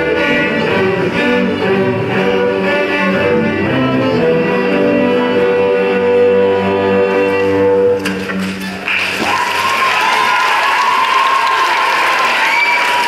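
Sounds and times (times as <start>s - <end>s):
string orchestra playing: 0.0s - 8.4s.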